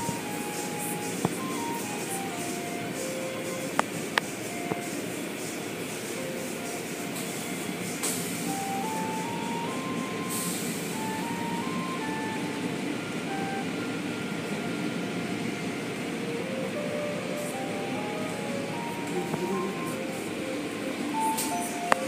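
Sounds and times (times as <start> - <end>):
faint melody of single notes: 0.0 - 22.0
burst of hiss: 2.4 - 9.3, 10.3 - 11.0.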